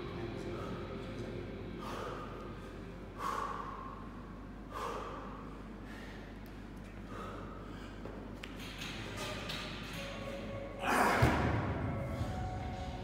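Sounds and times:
person exhaling heavily: 1.8s - 4.0s.

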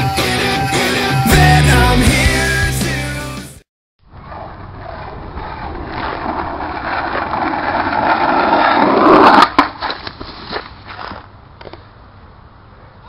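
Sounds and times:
skateboard wheels rolling on asphalt: 4.1s - 11.8s.

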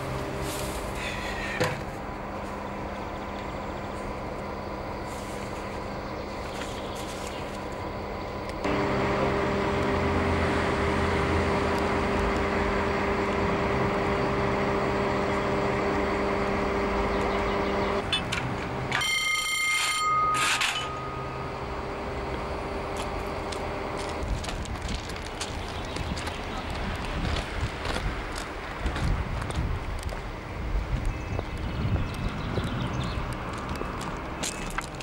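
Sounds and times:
engine drone: 0.0s - 35.0s
electric ringing tone: 18.9s - 21.6s.

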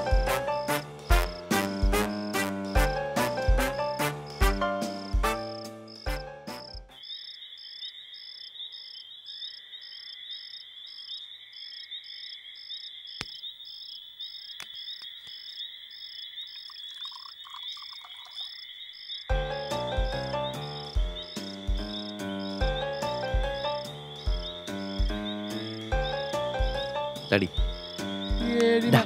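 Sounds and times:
crickets chirping: 0.2s - 29.0s
frogs trilling: 6.8s - 29.0s.

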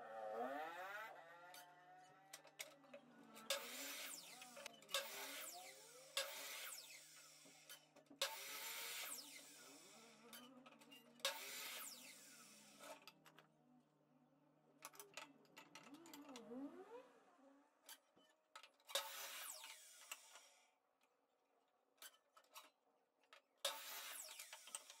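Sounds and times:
miter saw cutting wood: 0.0s - 1.7s, 3.5s - 10.2s, 11.3s - 13.0s, 19.0s - 20.4s, 23.7s - 25.0s.

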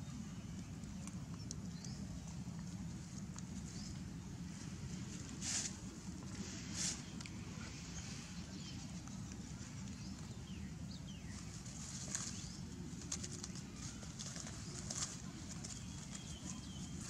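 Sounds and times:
dry leaves crackling: 1.0s - 17.0s
faint bird chirps: 13.3s - 17.0s.

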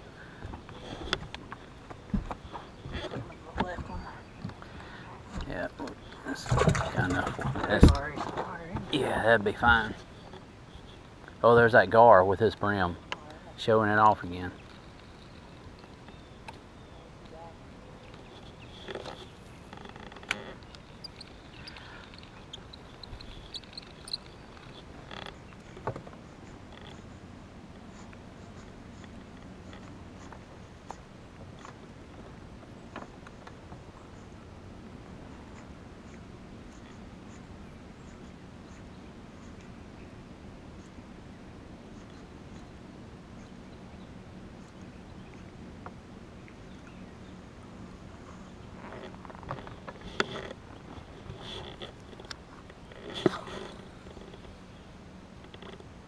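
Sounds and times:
faint ticks: 18.1s - 27.1s.

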